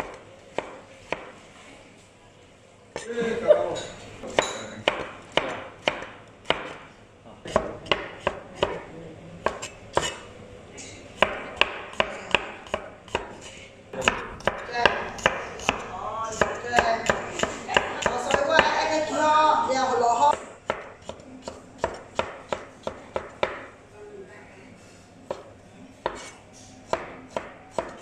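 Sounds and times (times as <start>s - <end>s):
cleaver chopping on wooden board: 4.9s - 6.8s.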